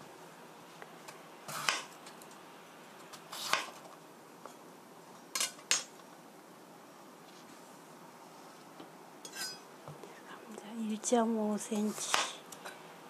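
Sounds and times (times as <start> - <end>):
knife cutting potato on board: 1.5 - 1.9, 3.3 - 3.8.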